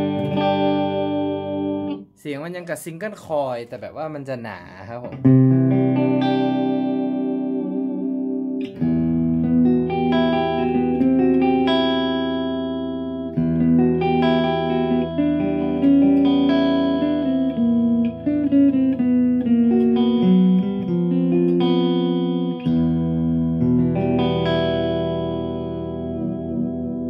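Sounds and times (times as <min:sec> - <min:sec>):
clean electric guitar melody: 0:00.0 - 0:02.1, 0:05.0 - 0:27.0.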